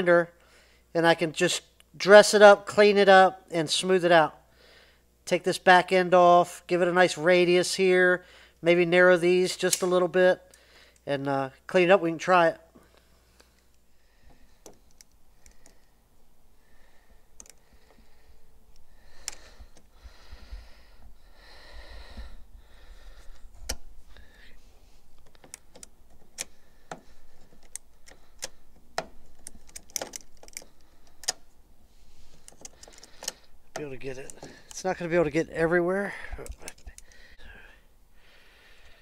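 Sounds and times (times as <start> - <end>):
locking pliers clicking and rattling: 25.2 - 31.4, 32.4 - 34.8, 36.4 - 37.2.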